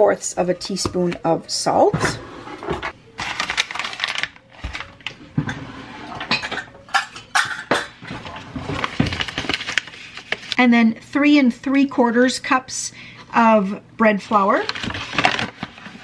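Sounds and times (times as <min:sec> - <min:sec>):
utensils clattering on counter: 0:05.4 - 0:09.2.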